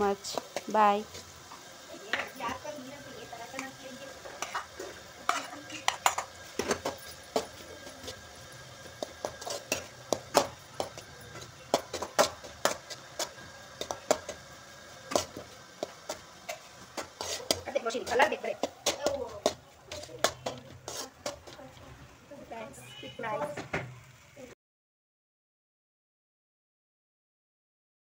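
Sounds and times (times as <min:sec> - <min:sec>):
spoon clinking and scraping pan: 0:04.2 - 0:12.8, 0:16.1 - 0:18.1, 0:19.9 - 0:21.6.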